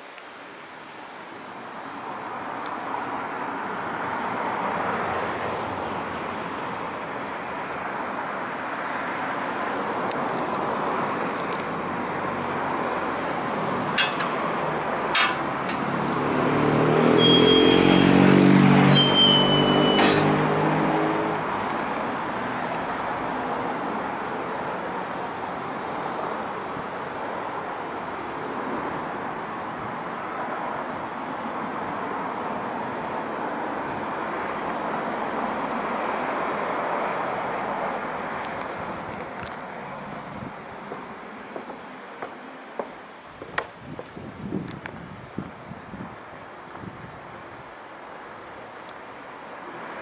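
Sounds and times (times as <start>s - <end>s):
vehicle engine passing: 13.6s - 21.6s
high squeaks: 17.2s - 18.3s, 18.9s - 20.4s.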